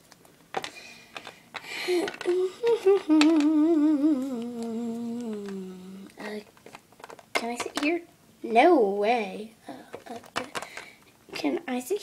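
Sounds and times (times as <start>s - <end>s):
girl humming with vibrato: 1.9s - 6.3s.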